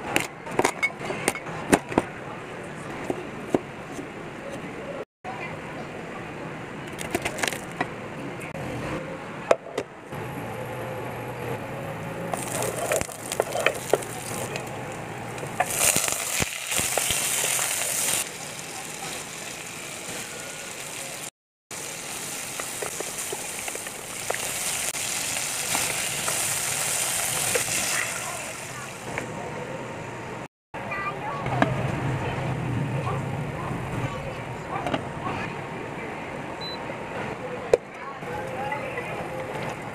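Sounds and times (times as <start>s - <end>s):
chicken sizzling in a pot: 12.4s - 14.7s, 15.5s - 29.0s.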